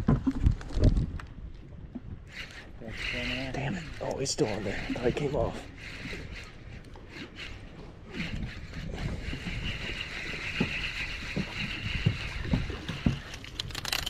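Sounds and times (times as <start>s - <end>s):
wind rumble on microphone: 0.0s - 5.2s, 7.9s - 13.6s
fishing reel being cranked: 2.3s - 14.0s.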